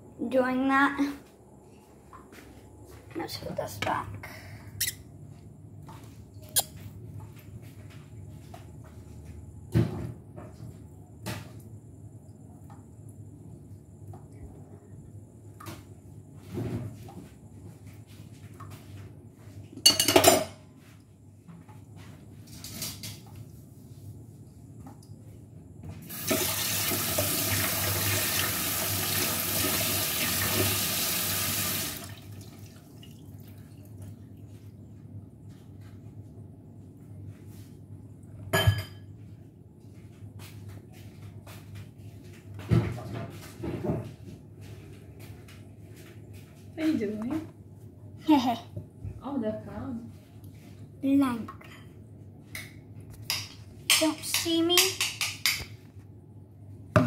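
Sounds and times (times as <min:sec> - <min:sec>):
tap water running into sink: 0:26.1 - 0:33.4
kitchen items knocking and clicking: 0:53.2 - 0:55.8.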